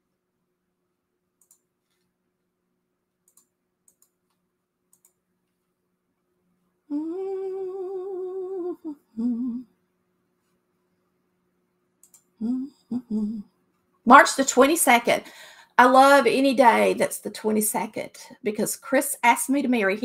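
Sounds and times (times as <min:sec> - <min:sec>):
faint clicks: 0:01.4 - 0:02.1, 0:03.2 - 0:05.2, 0:12.0 - 0:12.3
woman humming: 0:06.9 - 0:09.8, 0:12.4 - 0:13.6.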